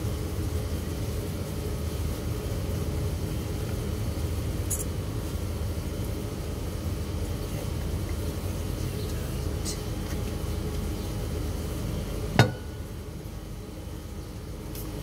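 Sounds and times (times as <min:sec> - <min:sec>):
sharp knock with ringing tone: 0:12.4 - 0:12.8.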